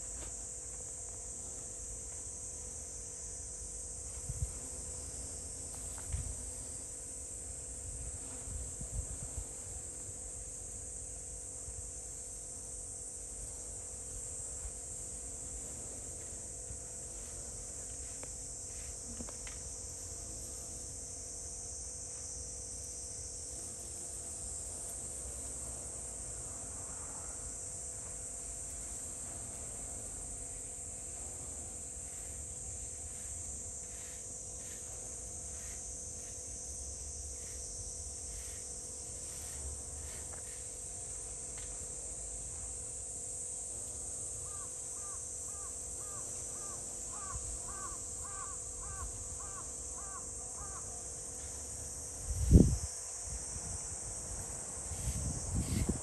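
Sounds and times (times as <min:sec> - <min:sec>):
insects chirping: 0:00.0 - 0:56.0
wind rumble on microphone: 0:08.0 - 0:09.6, 0:52.2 - 0:54.1, 0:54.8 - 0:56.0.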